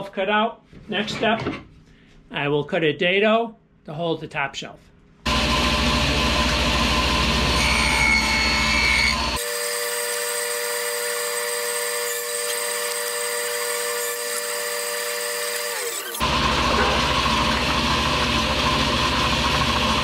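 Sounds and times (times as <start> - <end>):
motor whine: 5.3 - 9.4, 16.2 - 20.0
table saw cutting plywood: 5.3 - 20.0.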